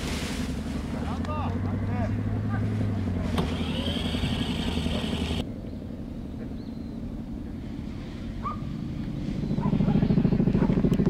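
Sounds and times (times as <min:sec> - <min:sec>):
low engine drone: 0:00.0 - 0:11.0
small engine whining: 0:00.5 - 0:05.4.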